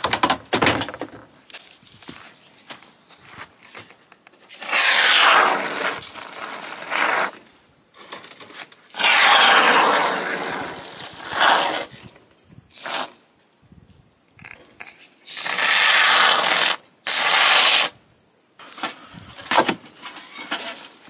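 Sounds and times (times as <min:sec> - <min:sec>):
aerosol foam spraying hiss: 0:04.4 - 0:07.7, 0:08.9 - 0:21.0.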